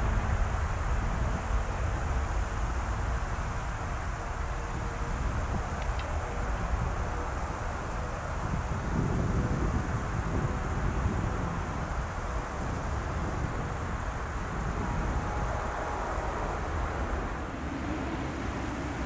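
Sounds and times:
faint jet engine whine: 0.0s - 19.0s
jet engines rumbling: 0.0s - 19.0s.

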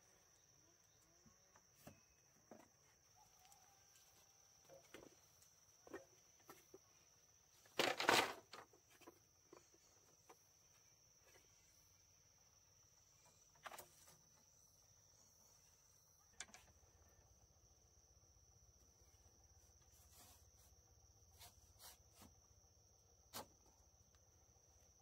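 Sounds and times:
bamboo slats clattering: 7.6s - 9.7s.

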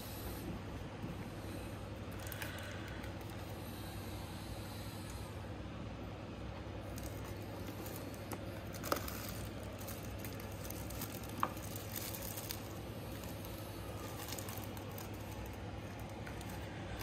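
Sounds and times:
sharp plastic crackles: 2.0s - 3.6s, 6.8s - 17.0s
plastic bag rustling and crinkling: 2.1s - 3.6s, 6.8s - 17.0s.

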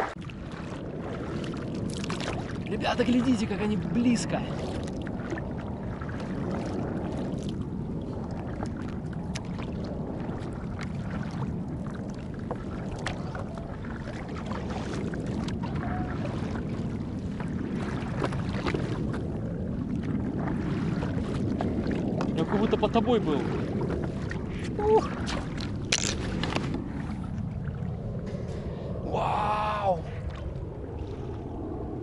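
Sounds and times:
water lapping against board: 0.0s - 28.8s
wind buffeting microphone: 0.0s - 32.0s
small drips and splashes: 0.1s - 2.7s, 4.5s - 19.2s.

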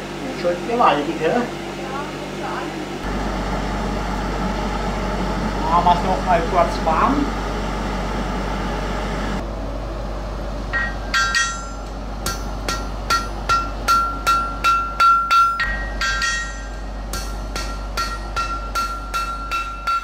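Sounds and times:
hammer striking iron on anvil: 10.7s - 20.0s.

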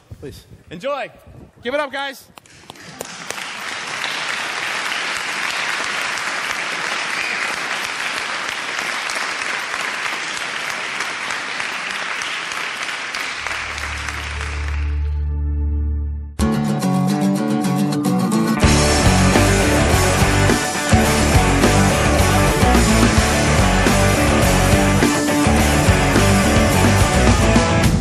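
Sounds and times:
audience applauding: 2.5s - 15.2s, 18.6s - 27.8s.

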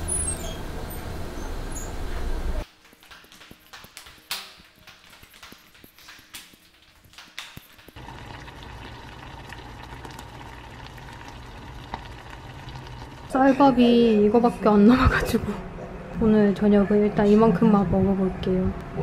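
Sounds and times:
sandals slapping on stairs: 2.6s - 8.0s
stew bubbling in a pot: 7.9s - 13.8s.

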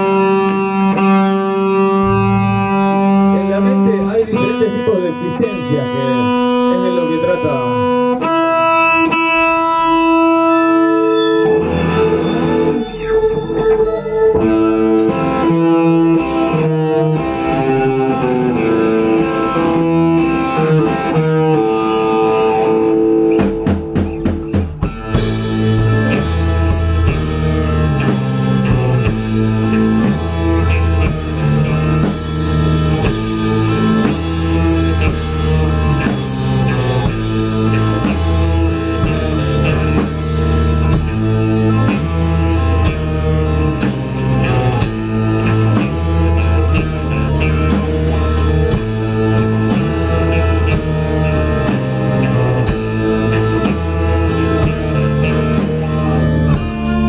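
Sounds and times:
drums and bass: 0.0s - 57.0s
electric guitar riffing: 0.0s - 57.0s
rock band playing: 0.0s - 57.0s.

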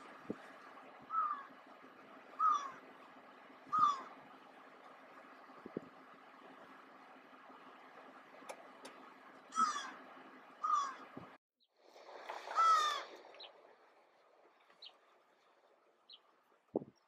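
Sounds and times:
crow cawing: 2.4s - 2.8s, 3.7s - 4.1s, 9.5s - 10.0s, 10.6s - 11.0s, 12.5s - 13.1s.

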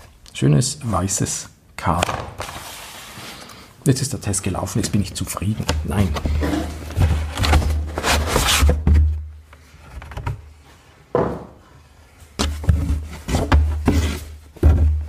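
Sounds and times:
cardboard rustling: 5.4s - 10.6s, 12.4s - 15.0s.

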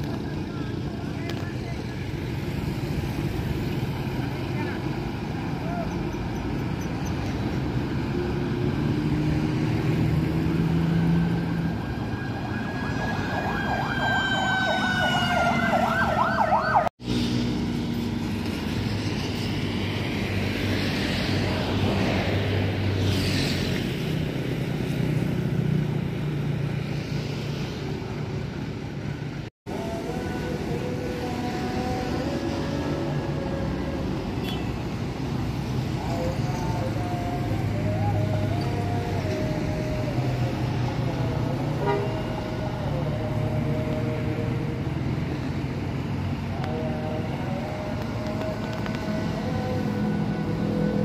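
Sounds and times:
road traffic: 0.0s - 51.0s
warbling siren-like horn: 12.3s - 16.9s
motorcycles passing: 35.1s - 51.0s.

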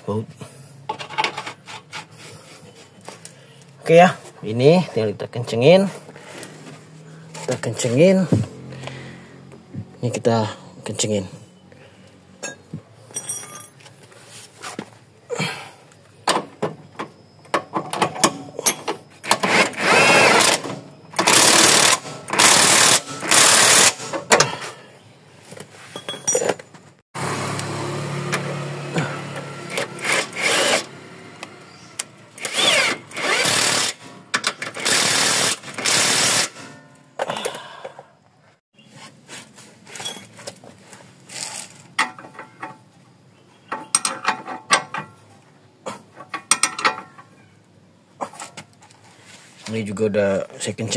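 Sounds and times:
impact wrench bursts: 19.2s - 24.4s, 29.1s - 31.0s, 32.3s - 36.7s.

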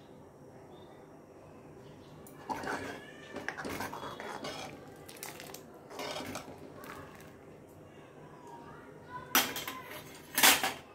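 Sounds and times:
ladle scraping metal pot: 2.4s - 7.3s.

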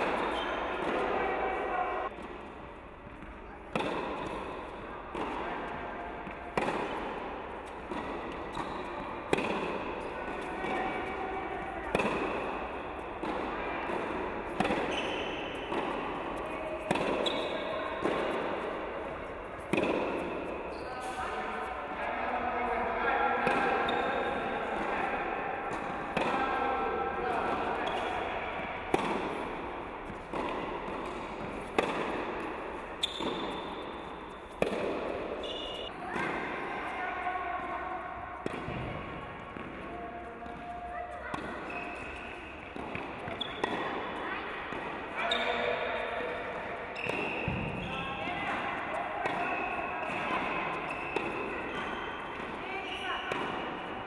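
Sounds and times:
tennis ball struck by racket: 3.7s - 20.5s, 23.4s - 24.0s, 25.7s - 26.4s, 27.4s - 36.5s, 38.4s - 39.8s, 40.4s - 42.1s, 42.7s - 44.1s, 49.2s - 52.6s, 53.3s - 53.8s
tennis racket strikes: 6.2s - 11.1s, 19.6s - 20.4s, 28.9s - 36.5s.

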